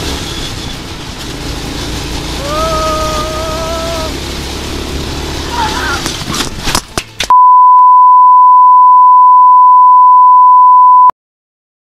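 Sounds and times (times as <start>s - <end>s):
steady test tone beep: 7.3s - 11.1s.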